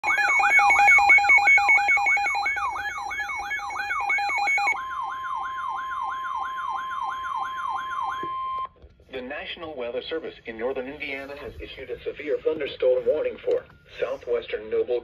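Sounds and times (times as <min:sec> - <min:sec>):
steady alarm tones: 0:00.0 - 0:08.7
sweeping siren-like alarm tone: 0:00.0 - 0:08.7.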